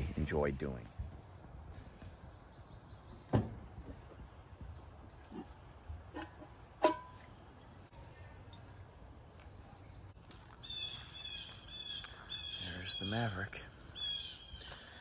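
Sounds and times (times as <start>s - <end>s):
bird calling: 9.7s - 15.0s.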